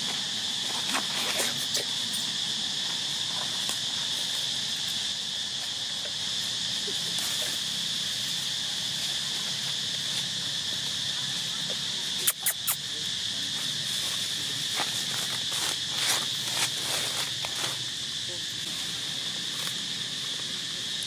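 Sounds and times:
insects buzzing: 0.0 - 21.0.

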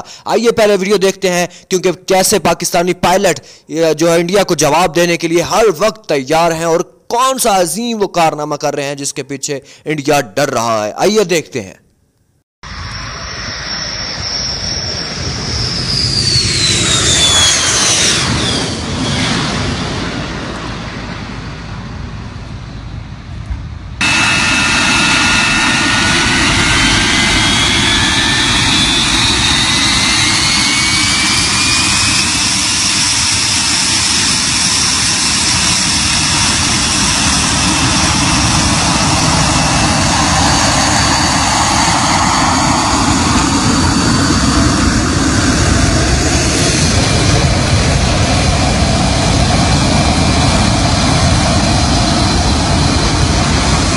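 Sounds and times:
jet engine roar: 0.0 - 1.6, 12.6 - 53.9
high whine rising in pitch: 12.6 - 53.9.

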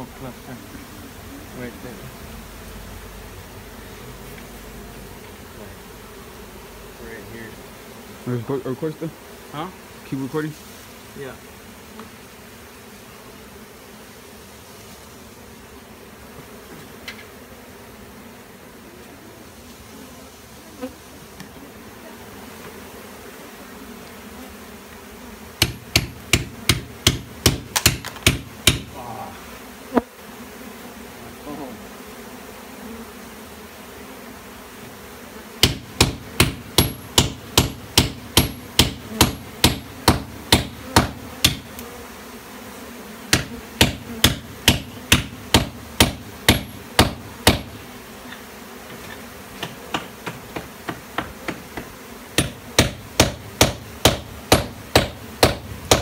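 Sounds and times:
honey bees buzzing: 0.0 - 56.0
hammer striking chisel on stone: 35.6 - 41.6, 52.4 - 56.0.

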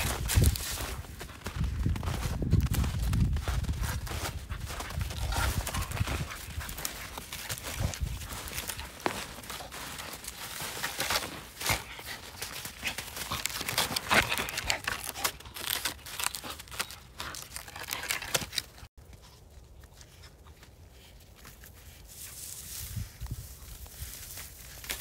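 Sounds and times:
wood crunching and splintering: 0.0 - 18.9
paws crunching in snow: 0.0 - 25.0
dog gnawing wood: 5.2 - 18.9.

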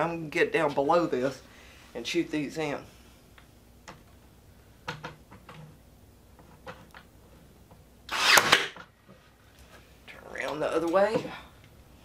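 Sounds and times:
tool handling clicks and knocks: 4.8 - 5.8.

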